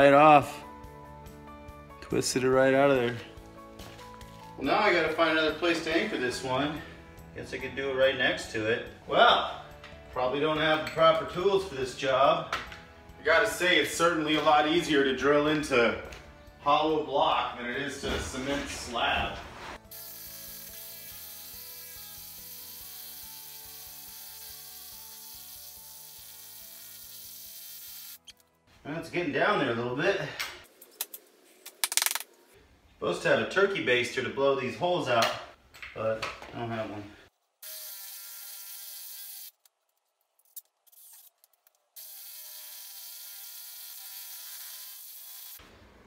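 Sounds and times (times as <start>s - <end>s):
quiet background music: 0.0s - 30.8s
drill boring into concrete: 37.6s - 39.5s, 42.0s - 45.6s.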